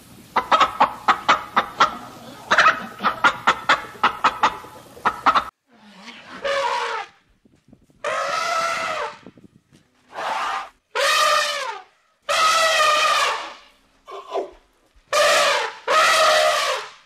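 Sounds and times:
elephants trumpeting: 5.7s - 7.2s, 8.0s - 9.2s, 10.1s - 14.5s, 15.1s - 16.9s.

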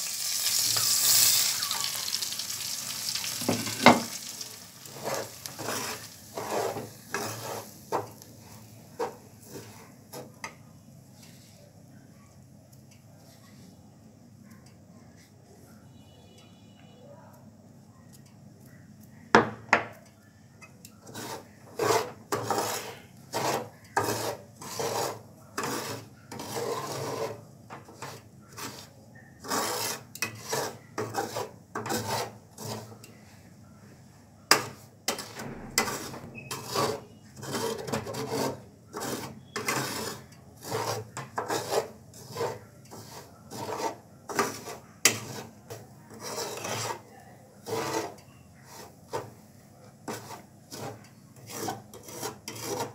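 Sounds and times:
metal spatula scraping pan: 0.2s - 10.5s, 21.0s - 33.4s, 34.5s - 49.4s, 50.0s - 52.9s.

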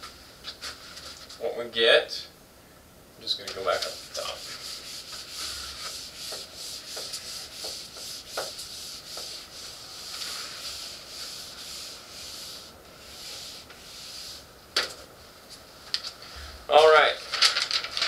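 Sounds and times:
eraser rubbing on whiteboard: 3.6s - 14.5s.

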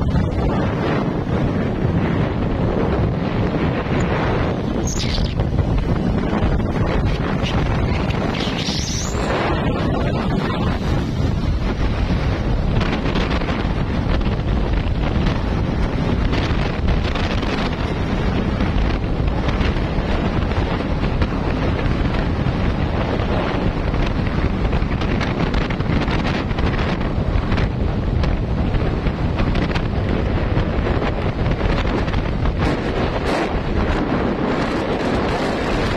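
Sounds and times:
wind blasting across microphone: 0.0s - 35.9s.

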